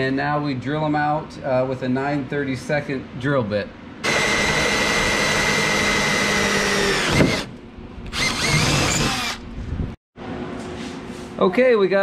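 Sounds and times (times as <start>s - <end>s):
cordless drill boring sheet metal: 4.0s - 7.5s, 8.1s - 9.4s.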